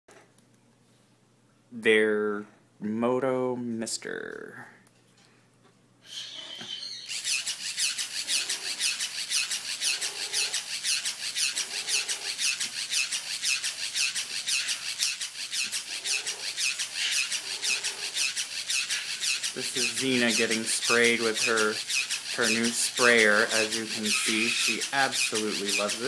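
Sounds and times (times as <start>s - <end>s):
sprayer pulsing hiss: 14.4s - 26.0s.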